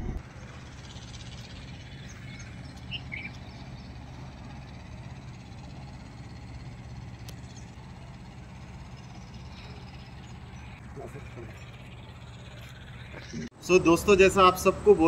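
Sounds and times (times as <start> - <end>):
low rumble: 0.0 - 0.3
bird chirps: 0.5 - 5.8.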